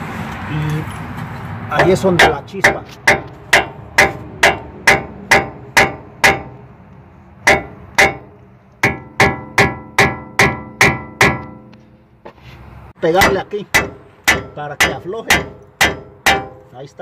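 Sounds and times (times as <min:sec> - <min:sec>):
hammer striking steel: 0:01.8 - 0:06.6, 0:07.4 - 0:12.0, 0:13.1 - 0:16.7.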